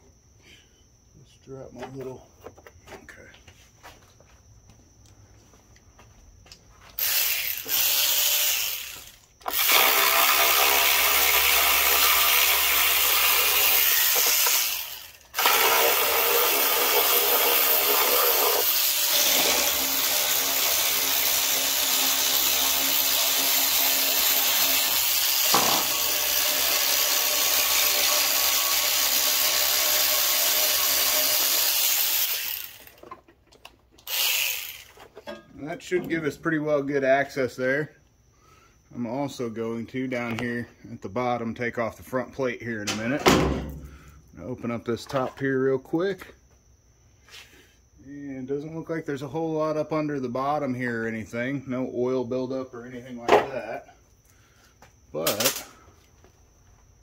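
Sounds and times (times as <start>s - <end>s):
power ratchet running: 7.0s - 33.0s, 34.0s - 35.0s.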